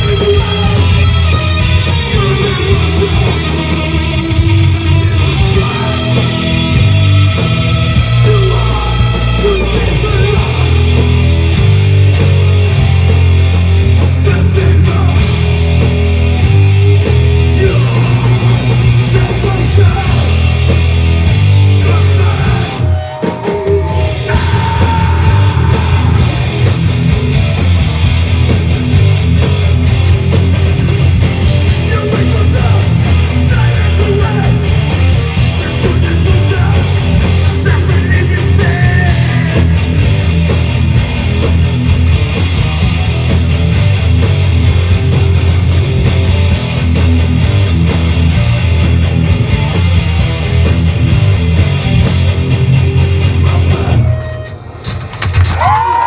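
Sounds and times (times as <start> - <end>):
vocals: 0.0 - 11.5, 13.9 - 15.8, 16.7 - 27.1, 31.6 - 40.2, 53.1 - 54.4
bass: 0.0 - 56.0
distorted guitar: 0.0 - 56.0
drums: 0.0 - 56.0.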